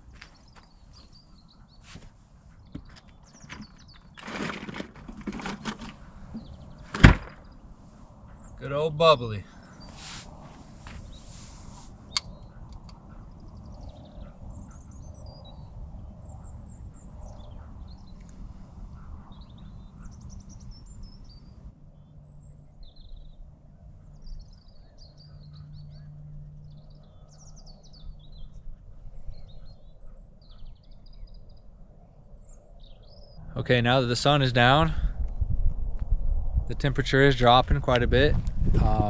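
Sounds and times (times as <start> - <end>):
small birds chirping and trilling: 0.0 - 35.5
wind rumble on microphone: 9.6 - 25.2, 25.8 - 39.0.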